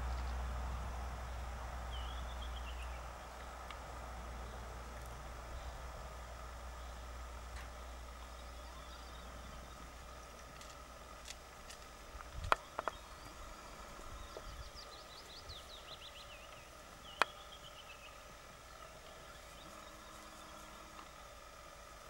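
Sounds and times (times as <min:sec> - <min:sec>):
songbird whistling: 0:01.9 - 0:03.1.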